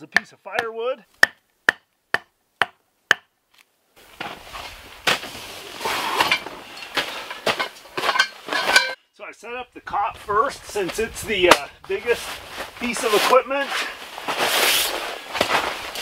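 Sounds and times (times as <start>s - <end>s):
rustling and clattering of camp cot: 4.0s - 9.0s, 10.9s - 16.0s.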